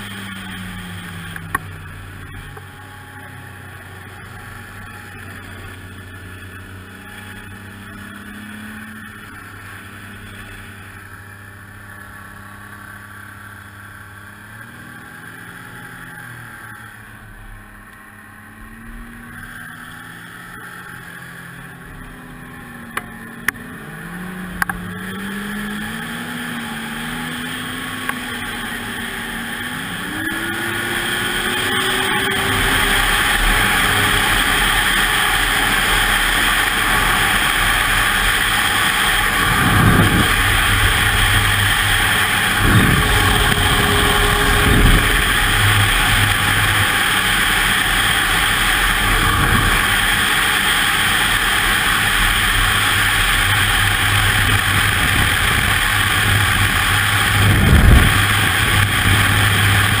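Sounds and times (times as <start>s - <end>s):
snowmobile engine running: 0.0s - 60.0s
wind rush on microphone: 30.0s - 60.0s.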